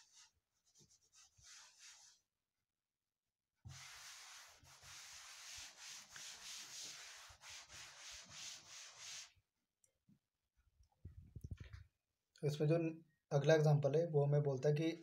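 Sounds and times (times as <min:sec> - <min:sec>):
duster rubbing chalkboard: 0:00.0 - 0:02.2, 0:03.7 - 0:09.3.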